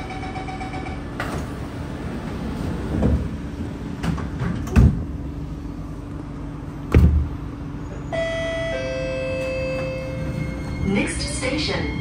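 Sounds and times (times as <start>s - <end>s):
train hum: 0.0s - 12.0s
train doors thudding shut: 1.2s - 5.2s, 6.8s - 7.4s
door-closing warning tone: 7.8s - 12.0s.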